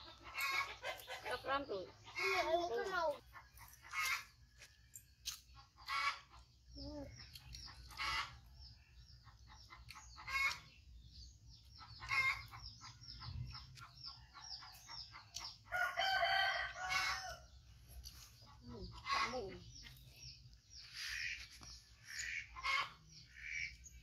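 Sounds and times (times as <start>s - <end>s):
small birds chirping: 0.0s - 24.0s
rooster crowing: 15.7s - 17.5s.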